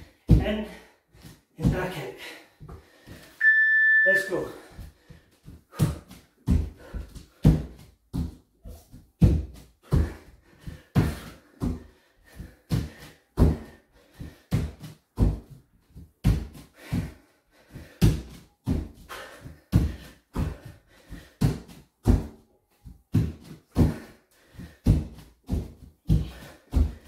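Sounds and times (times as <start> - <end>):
bare feet thudding on wooden floor: 4.8 - 17.2, 17.8 - 27.0.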